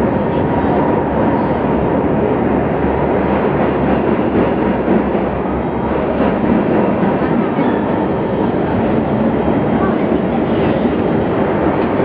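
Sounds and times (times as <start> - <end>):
train wheels running on rails: 0.0 - 12.0.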